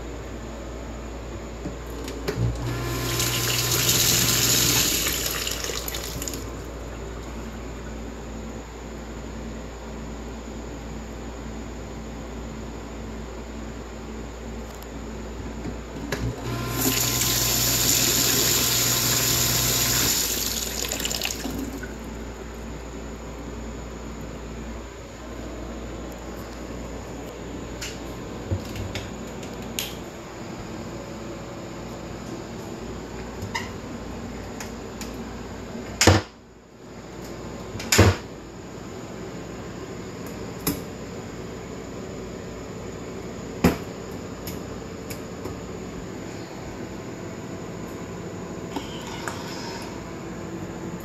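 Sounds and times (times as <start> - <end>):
steady mechanical hum: 0.0 - 51.0
water pump humming: 1.9 - 8.0, 16.1 - 22.5
water rushing into a tub: 2.7 - 6.5, 16.4 - 21.9.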